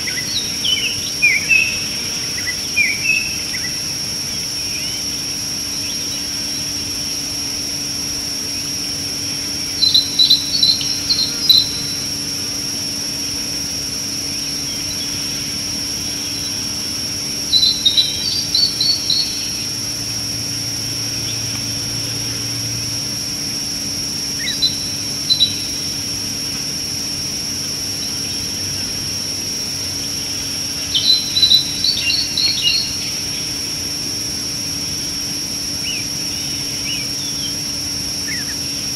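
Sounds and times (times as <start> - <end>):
insects droning: 0.0 - 38.9
bird chirping: 9.7 - 12.1, 17.5 - 19.7, 24.4 - 25.9, 30.8 - 33.6.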